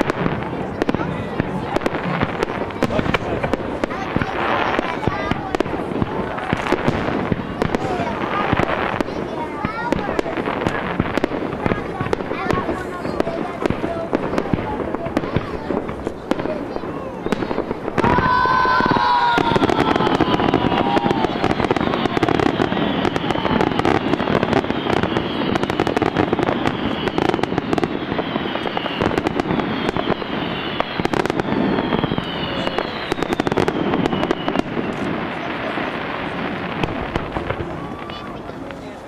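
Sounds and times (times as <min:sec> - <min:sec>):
fireworks crackling and popping: 0:00.0 - 0:39.0
firework whistles falling in pitch: 0:17.2 - 0:38.5.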